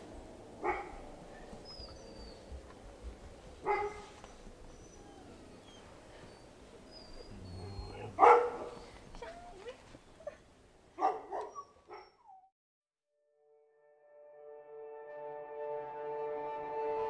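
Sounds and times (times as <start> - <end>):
dogs barking: 0.6 - 2.6, 3.6 - 5.9, 7.1 - 9.6, 11.0 - 12.4
dog whimpering: 3.8 - 10.5, 11.4 - 12.5.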